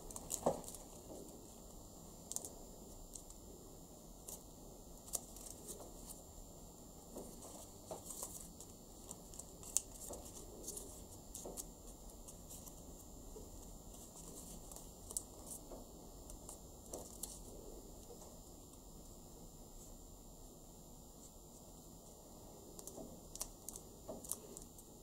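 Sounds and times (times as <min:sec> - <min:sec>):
paper crinkling while folded: 0:00.0 - 0:03.4, 0:04.2 - 0:06.2, 0:07.1 - 0:18.4, 0:22.7 - 0:25.0.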